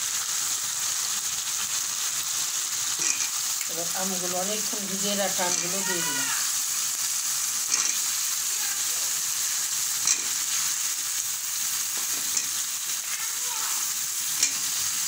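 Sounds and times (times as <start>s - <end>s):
food sizzling in oil: 0.0s - 15.0s
metal spatula knocking pan: 5.5s - 5.9s.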